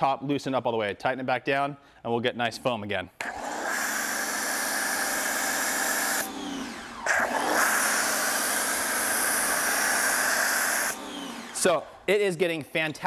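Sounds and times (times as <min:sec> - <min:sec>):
pressure washer hum: 0:03.2 - 0:12.1.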